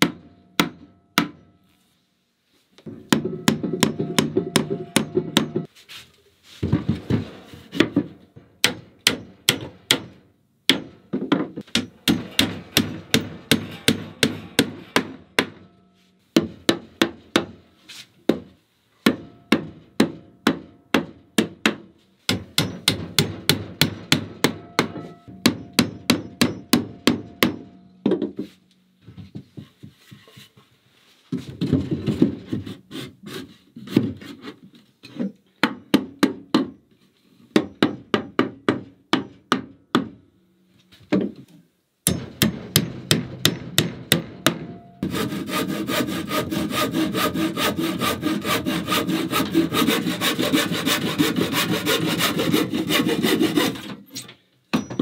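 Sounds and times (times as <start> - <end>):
hammer blows on wood: 2.9 - 5.7.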